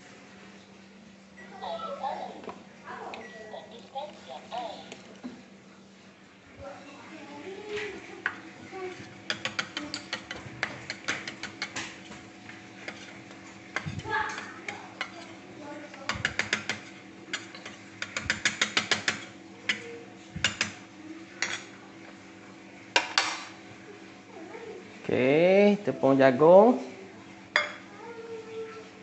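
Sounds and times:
steady low hum: 0:00.0 - 0:28.8.

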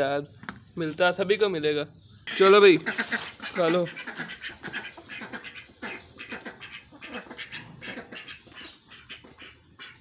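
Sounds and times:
hens calling: 0:00.5 - 0:10.0
duck calling: 0:02.2 - 0:10.0.

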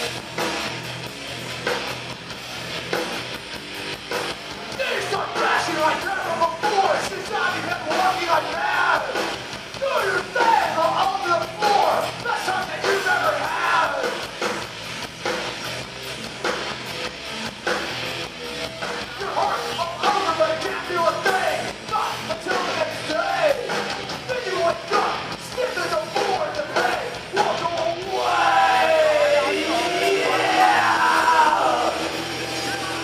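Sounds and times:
electric guitars: 0:00.0 - 0:33.0
live thrash band playing: 0:00.0 - 0:33.0
person singing: 0:24.3 - 0:33.0.

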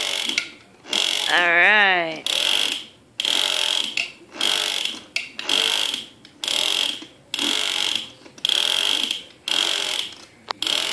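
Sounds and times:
toy hammer drill bursts: 0:02.2 - 0:10.9.

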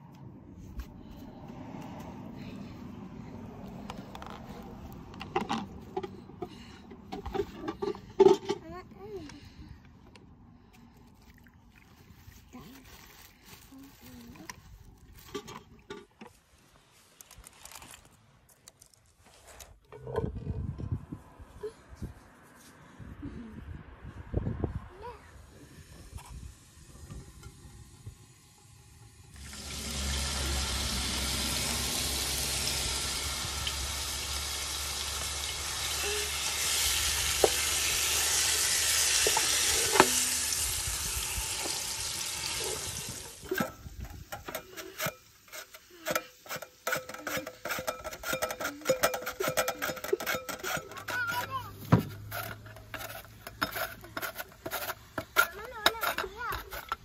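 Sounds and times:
chicken sizzling in hot oil: 0:27.6 - 0:43.4
wooden spatula stirring: 0:44.4 - 0:57.0.

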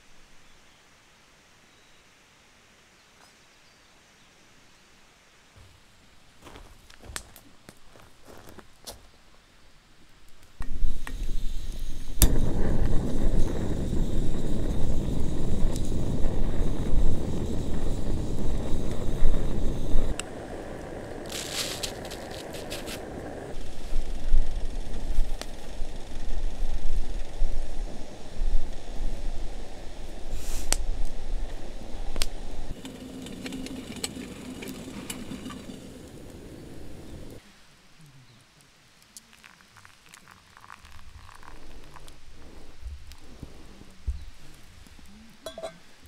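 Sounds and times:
gas burner flame rushing: 0:10.6 - 0:37.4
wind buffeting microphone: 0:10.7 - 0:37.4.

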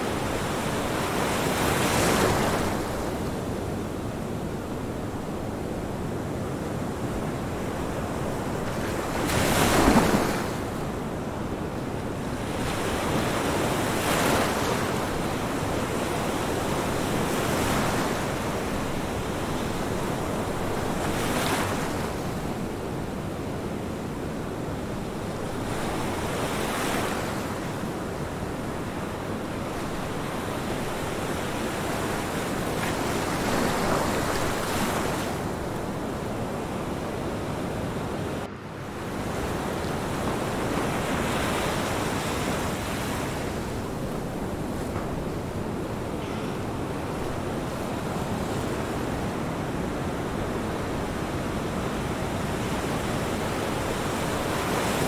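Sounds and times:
surf washing in: 0:06.9 - 0:22.8.

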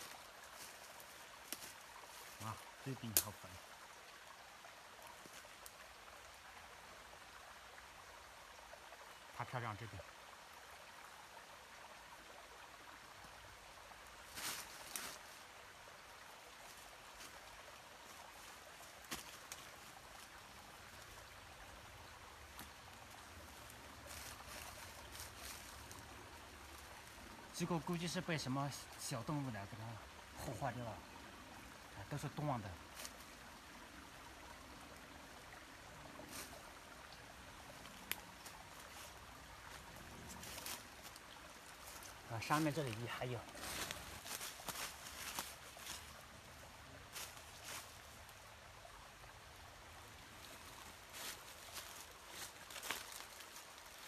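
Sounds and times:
dry leaves rustling: 0:00.0 - 0:02.6, 0:14.2 - 0:15.4, 0:22.4 - 0:27.4, 0:37.8 - 0:46.2, 0:47.0 - 0:48.2, 0:50.4 - 0:54.0
faint steady hiss: 0:00.0 - 0:54.0.

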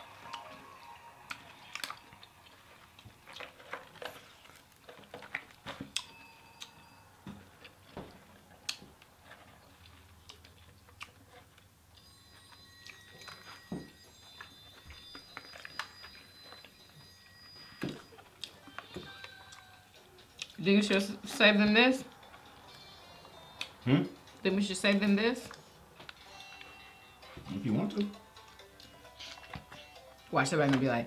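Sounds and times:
chewing: 0:00.0 - 0:23.8, 0:25.4 - 0:29.9
faint high tones: 0:11.9 - 0:20.2.

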